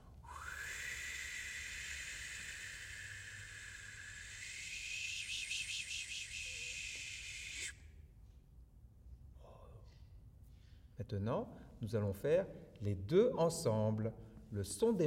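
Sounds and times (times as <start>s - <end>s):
man blowing breathy hiss: 0.3s - 7.8s.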